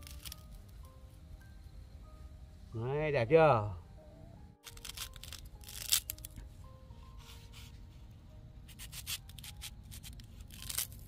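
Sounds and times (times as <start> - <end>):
soft background music: 0.0 - 11.0
cleaver cutting plant stalk: 8.7 - 11.0.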